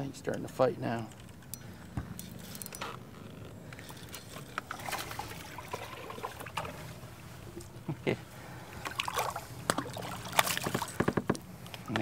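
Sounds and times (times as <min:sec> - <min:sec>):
low steady hum: 0:00.0 - 0:12.0
water splashing and trickling: 0:03.8 - 0:07.8, 0:08.4 - 0:12.0.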